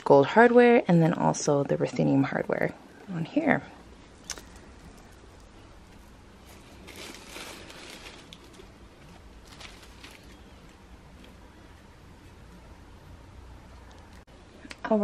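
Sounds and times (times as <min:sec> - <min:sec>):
tissue paper rustle: 0:06.0 - 0:10.8.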